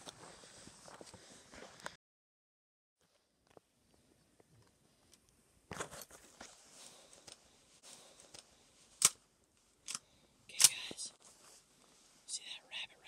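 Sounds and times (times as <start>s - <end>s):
faint rustling and handling: 3.0s - 12.9s.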